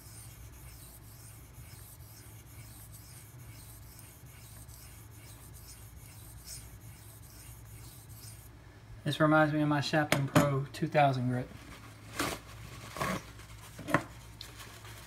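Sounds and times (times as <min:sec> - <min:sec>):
knife scraping on whetstone: 0:00.0 - 0:08.5.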